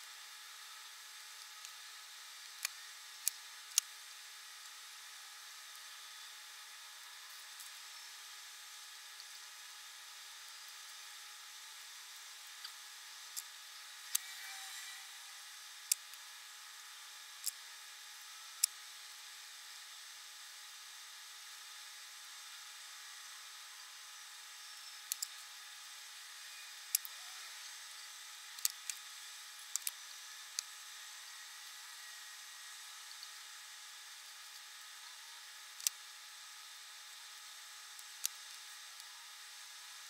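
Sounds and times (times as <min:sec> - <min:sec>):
small clicks from handling wires: 0:29.7 - 0:30.0.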